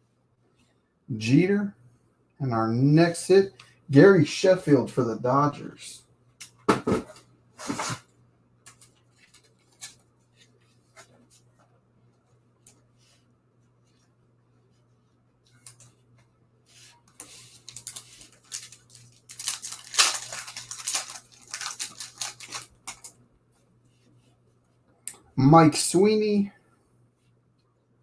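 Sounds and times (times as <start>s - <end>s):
cards rustling and scraping: 8.7s - 11.7s, 15.5s - 23.2s.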